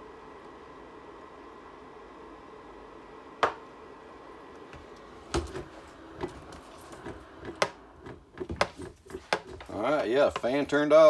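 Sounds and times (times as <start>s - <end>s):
heater fan whirring: 0.0s - 11.0s
plastic heater handled knocks: 7.0s - 10.6s.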